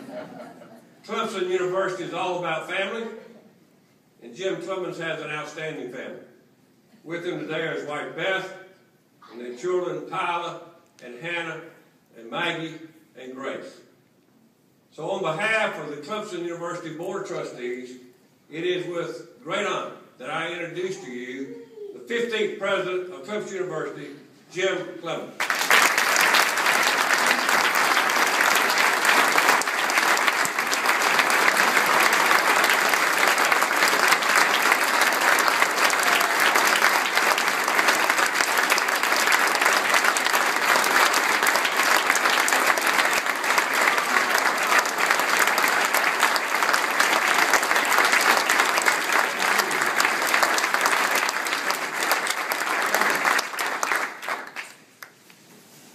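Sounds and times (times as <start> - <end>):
audience applauding: 25.4 - 55.1.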